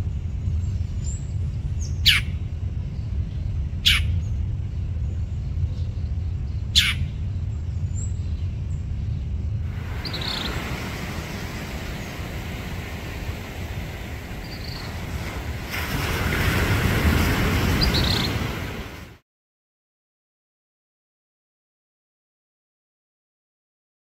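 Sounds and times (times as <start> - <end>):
low steady rumble: 0.0 - 19.1
broad rushing noise: 0.0 - 19.2
bird giving harsh calls: 2.0 - 2.3, 3.8 - 4.2, 6.8 - 7.1.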